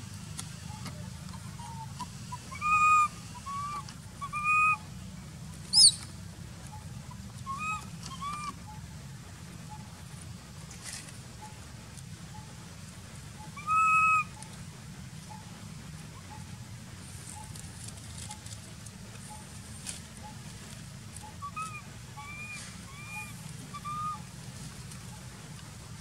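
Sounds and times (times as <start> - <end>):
baby monkey crying: 1.3 - 4.8, 7.4 - 8.6, 13.4 - 14.4, 21.2 - 24.3.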